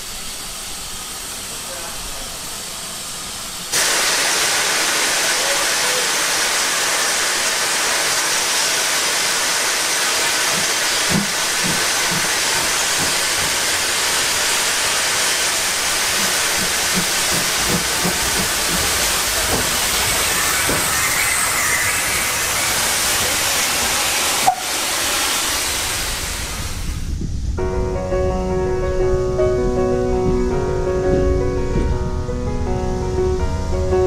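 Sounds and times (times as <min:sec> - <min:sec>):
locomotive steam hissing: 0:00.0 - 0:27.5
low knocks from locomotive: 0:10.4 - 0:14.0, 0:16.0 - 0:21.1.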